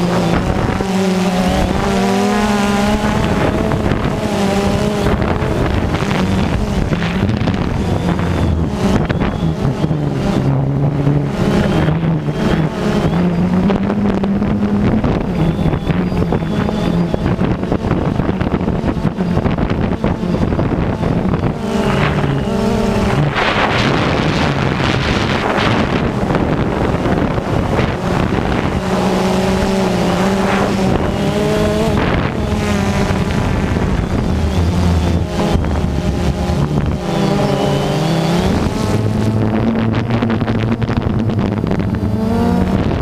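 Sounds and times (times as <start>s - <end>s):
drone propellers whirring: 0.0s - 43.0s
wind noise on microphone: 0.0s - 43.0s.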